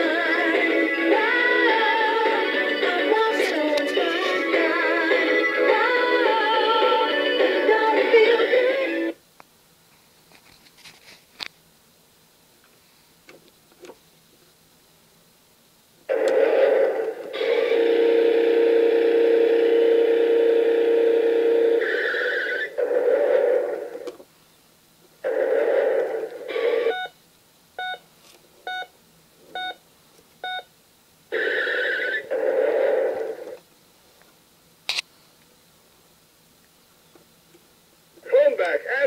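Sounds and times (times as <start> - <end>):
long steady electronic tone: 16.1 - 21.9.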